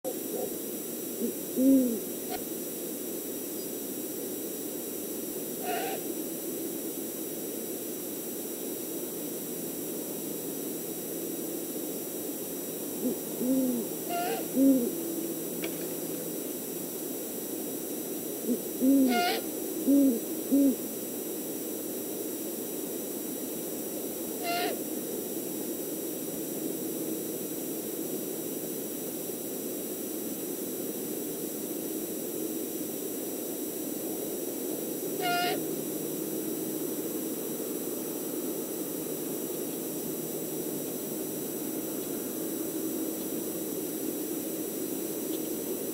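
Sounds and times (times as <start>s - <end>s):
owl hooting: 0.1s - 0.6s, 1.2s - 2.5s, 5.6s - 6.2s, 13.0s - 15.2s, 18.4s - 21.0s, 24.3s - 24.9s, 35.1s - 35.7s.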